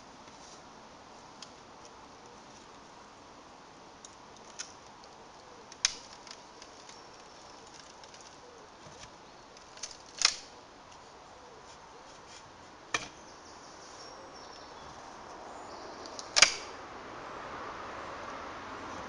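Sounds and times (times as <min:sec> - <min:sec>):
wooden pole cracking: 0:04.0 - 0:10.6, 0:11.7 - 0:13.2, 0:16.1 - 0:16.8.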